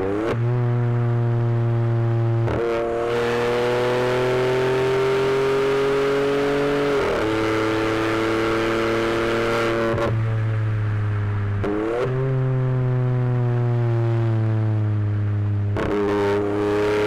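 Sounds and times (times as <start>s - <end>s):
car engine accelerating: 0.0s - 17.0s
deep drone: 9.0s - 16.6s.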